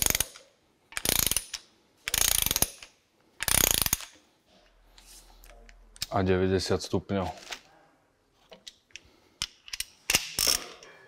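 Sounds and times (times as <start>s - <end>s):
ratchet wrench clicking: 0.0s - 0.4s, 1.0s - 4.2s, 9.6s - 10.7s.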